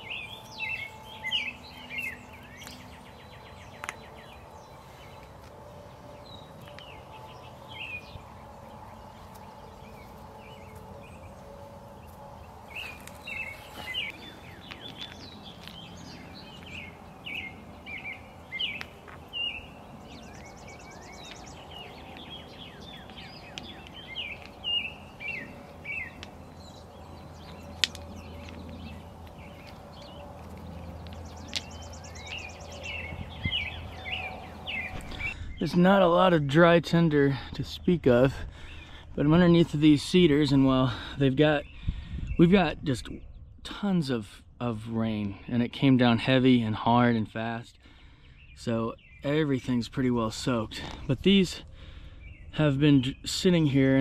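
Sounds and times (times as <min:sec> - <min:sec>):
buzzy bird trill: 0:00.0 - 0:05.4, 0:06.1 - 0:35.8
songbirds singing: 0:00.0 - 0:54.0.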